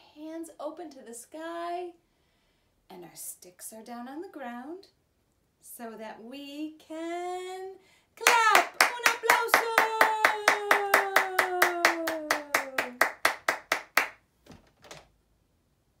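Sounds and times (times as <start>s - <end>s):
hands clapping: 8.2s - 14.2s.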